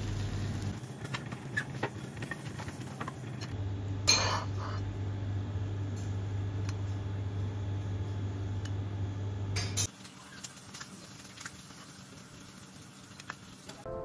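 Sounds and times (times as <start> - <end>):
steady low hum: 1.9 - 9.9.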